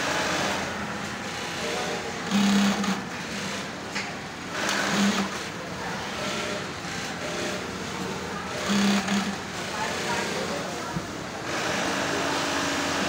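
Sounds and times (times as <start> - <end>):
workshop machinery: 0.0 - 13.0
industrial sewing machine stitching: 1.3 - 3.8, 4.5 - 10.4.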